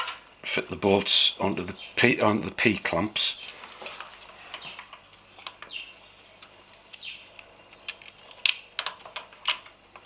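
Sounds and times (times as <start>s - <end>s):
bolts clinking against metal bracket: 4.5s - 10.0s.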